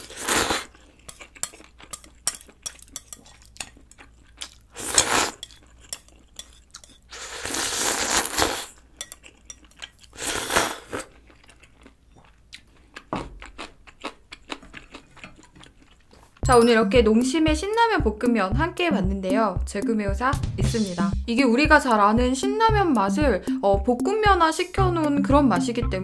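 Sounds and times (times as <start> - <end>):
noodles being slurped: 0.0 - 1.7, 4.4 - 6.3, 7.0 - 11.6.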